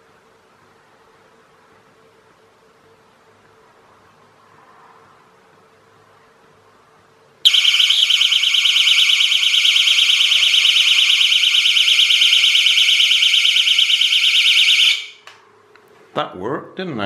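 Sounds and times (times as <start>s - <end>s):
high-pitched pulsing alarm: 7.5s - 15.2s.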